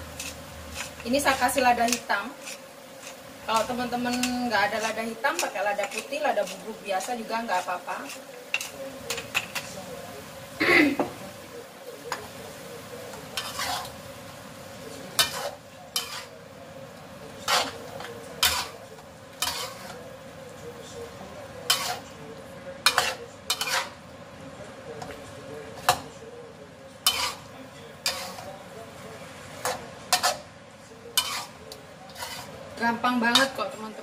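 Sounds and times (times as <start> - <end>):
low sizzle from pan: 0.0 - 34.0
spatula clanking on metal wok: 8.1 - 9.7, 15.2 - 16.3, 17.4 - 18.8, 19.4 - 20.0, 21.7 - 22.0, 22.8 - 24.0, 27.0 - 28.5, 29.6 - 30.4, 31.2 - 31.5, 33.3 - 33.6.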